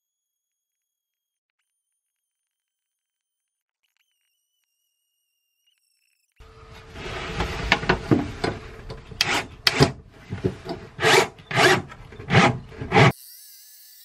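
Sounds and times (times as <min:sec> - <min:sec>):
cordless drill boring into wood: 0:09.1 - 0:13.2.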